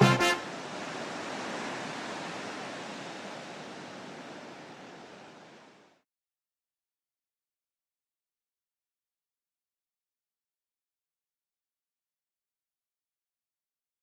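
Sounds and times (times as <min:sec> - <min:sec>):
sea surf rushing: 0:00.0 - 0:06.0.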